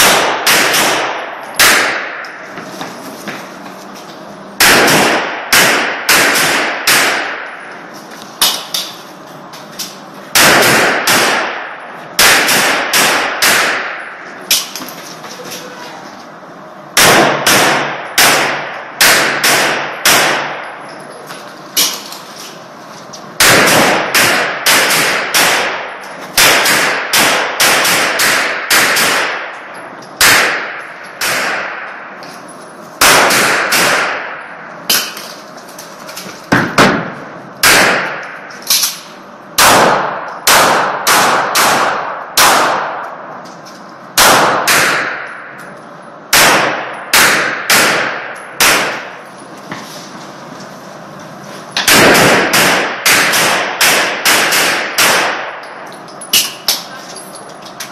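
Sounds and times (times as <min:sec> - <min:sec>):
pistol shots echoing: 0:00.0 - 0:02.4, 0:04.6 - 0:07.7, 0:10.3 - 0:14.7, 0:17.0 - 0:20.8, 0:23.4 - 0:32.1, 0:33.0 - 0:35.2, 0:36.5 - 0:38.5, 0:39.6 - 0:43.2, 0:44.2 - 0:45.6, 0:46.3 - 0:49.2, 0:51.8 - 0:55.8.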